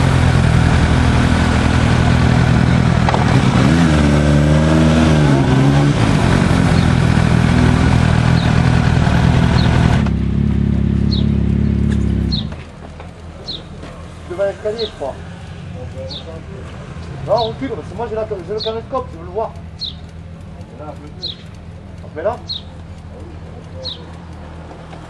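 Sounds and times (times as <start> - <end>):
small vehicle engine running: 0.0 - 25.0
birds chirping: 6.7 - 7.0, 8.2 - 8.7, 9.4 - 9.9, 11.0 - 13.8, 14.6 - 25.0.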